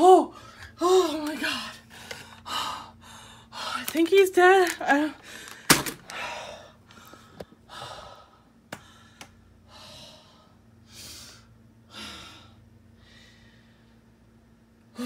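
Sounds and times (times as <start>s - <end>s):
woman breathing hard: 5.2s - 14.0s.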